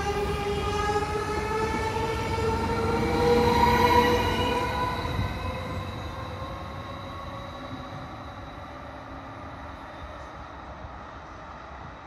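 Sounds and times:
train electric whine: 0.0 - 11.4.

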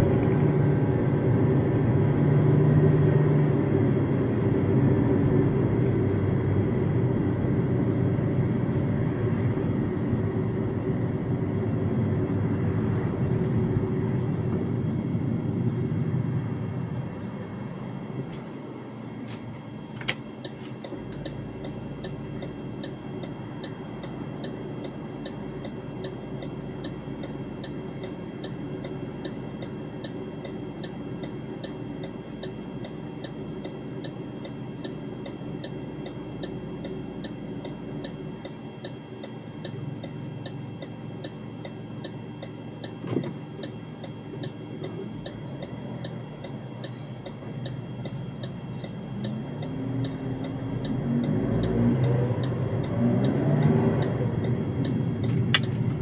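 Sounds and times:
car engine idling: 6.7 - 53.0, 54.0 - 56.0
turn signal ticking: 17.6 - 56.0
car accelerating: 20.0 - 56.0
sharp click: 55.2 - 56.0.

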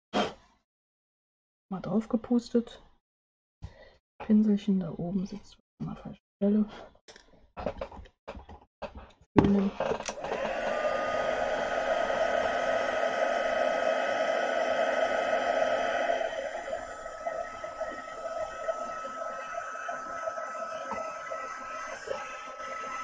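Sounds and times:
heat gun air rush: 10.2 - 23.0
heat gun fan whine: 10.2 - 23.0.

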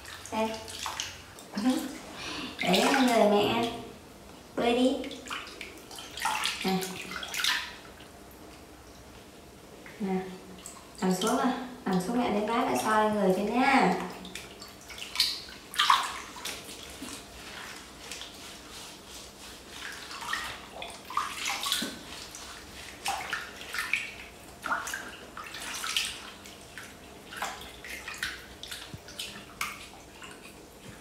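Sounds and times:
water splashing in a plastic basin: 0.0 - 3.8, 5.0 - 8.0, 13.7 - 31.0.

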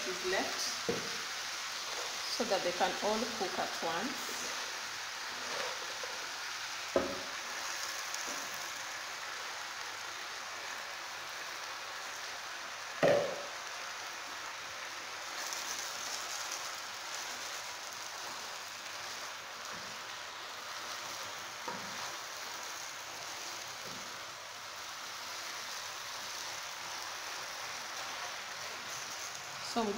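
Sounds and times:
spinach sizzling in oil: 0.0 - 29.9
wooden spoon stirring: 15.4 - 24.2, 25.2 - 29.9.

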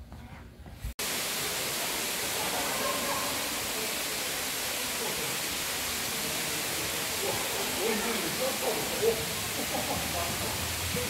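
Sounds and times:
steady rushing noise: 1.0 - 11.0.

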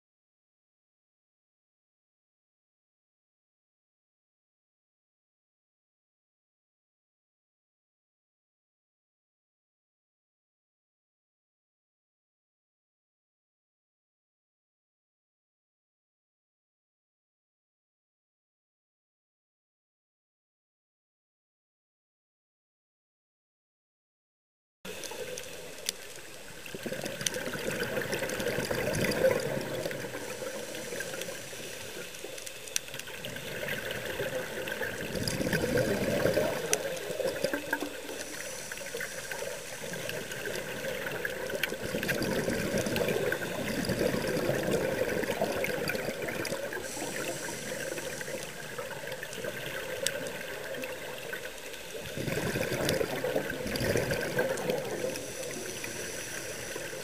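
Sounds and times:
exhaled air bubbling: 24.9 - 57.0
regulator hiss: 24.9 - 57.0.

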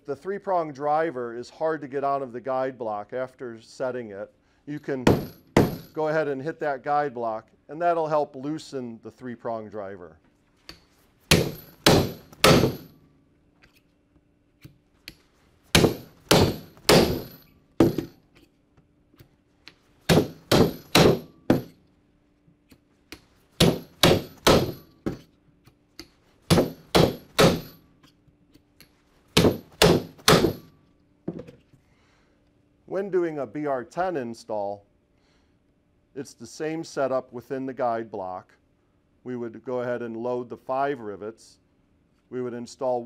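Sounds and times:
hammer striking rivet driver: 5.1 - 6.0, 10.7 - 12.9, 15.8 - 18.1, 20.1 - 21.8, 23.6 - 25.2, 26.0 - 27.8, 29.4 - 30.7.

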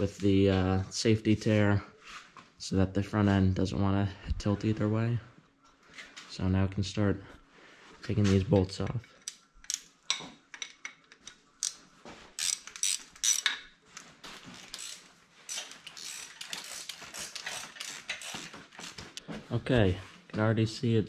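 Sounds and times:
ratchet wrench clicking: 9.2 - 9.9, 12.4 - 13.6, 14.6 - 19.0.

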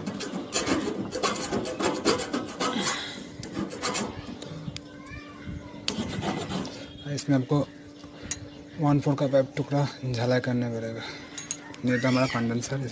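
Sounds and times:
metal file rasping on pipe: 0.0 - 4.2, 5.9 - 6.9.

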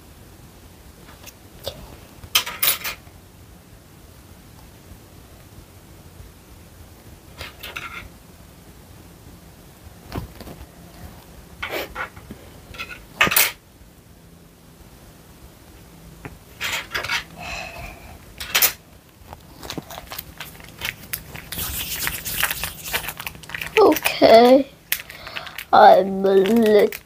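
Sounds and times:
small items clicking and tapping: 18.4 - 27.0.

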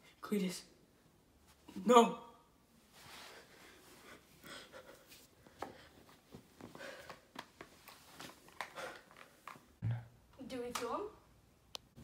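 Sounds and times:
soft rustles: 2.8 - 9.6.

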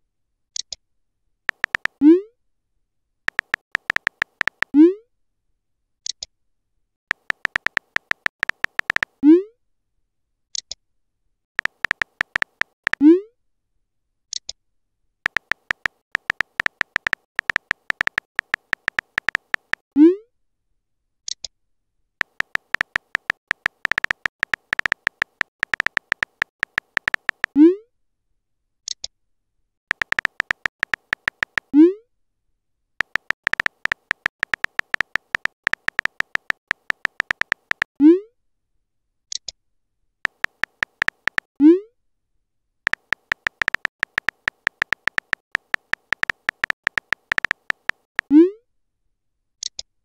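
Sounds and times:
keyboard typing clicks: 1.5 - 2.0, 3.3 - 4.8, 7.1 - 9.2, 11.6 - 13.0, 15.3 - 19.9, 22.2 - 27.6, 29.9 - 31.7, 33.0 - 37.9, 40.3 - 41.6, 42.9 - 48.3.

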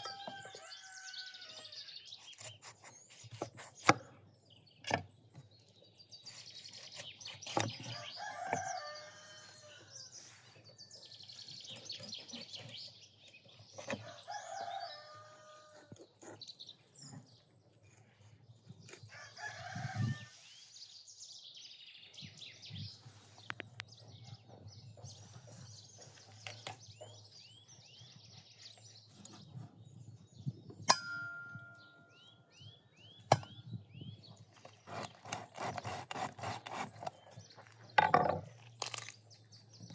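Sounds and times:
rooster crowing: 0.0 - 1.9, 7.9 - 9.9, 14.0 - 15.9, 19.1 - 20.4
small birds chirping: 0.0 - 30.9, 31.6 - 39.9
sharp ringing clink: 30.9 - 32.3.

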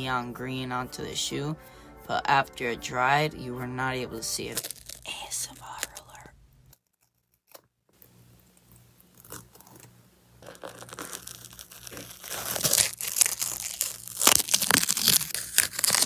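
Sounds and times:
tape peeling crackle: 4.5 - 7.6, 10.4 - 16.0.

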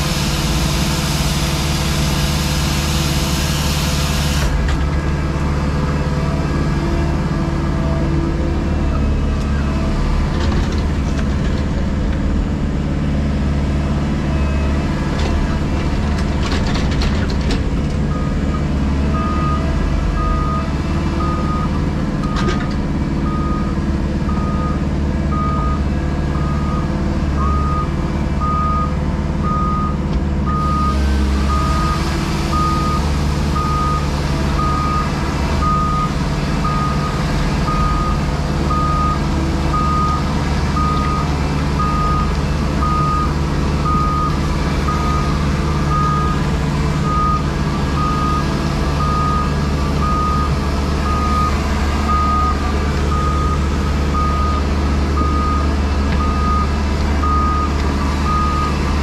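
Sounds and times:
diesel engine running: 0.0 - 59.0
reversing alarm beeping: 18.1 - 22.4, 23.2 - 40.2, 40.8 - 46.4, 47.0 - 58.8.

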